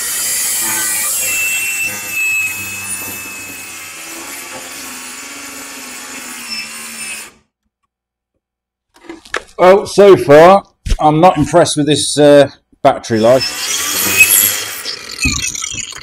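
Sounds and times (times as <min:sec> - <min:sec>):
angle grinder cutting steel bolt: 0:00.0 - 0:07.4, 0:13.2 - 0:16.0.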